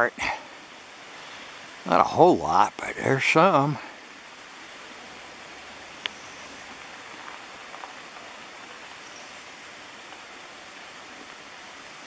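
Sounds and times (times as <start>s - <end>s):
rushing outdoor hiss: 0.0s - 12.0s
faint ticks: 6.0s - 8.3s, 10.1s - 10.3s.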